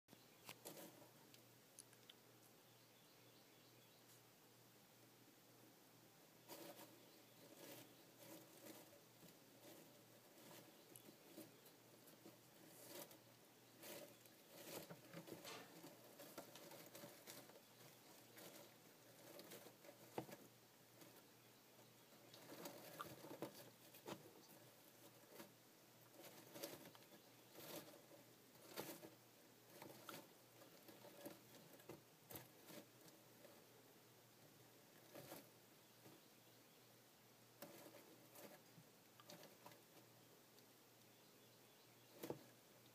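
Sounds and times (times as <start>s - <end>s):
rustling of wood-chip bedding: 0.2s - 1.5s, 6.4s - 36.6s.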